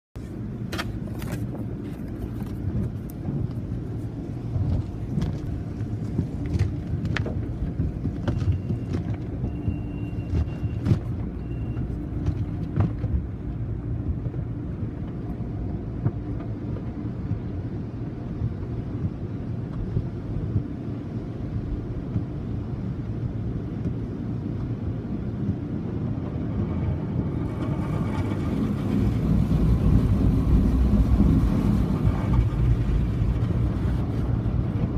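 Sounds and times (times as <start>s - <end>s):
car wash machinery rumbling: 0.2s - 34.9s
water spray on car: 27.3s - 34.9s.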